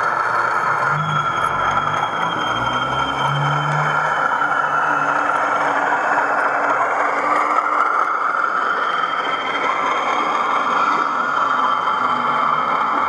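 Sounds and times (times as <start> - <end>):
diesel engine hum from speaker: 0.0 - 8.2
model train wheels rumbling on track: 0.0 - 13.0.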